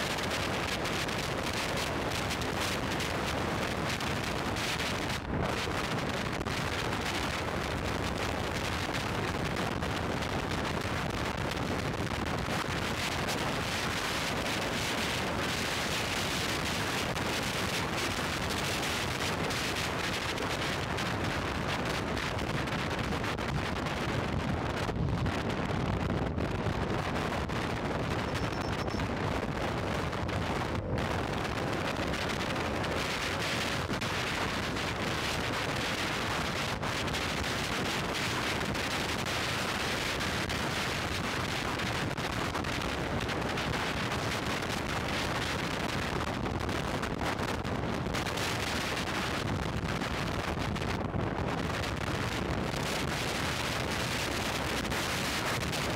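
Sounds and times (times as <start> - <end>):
wind buffeting microphone: 0.0 - 55.9.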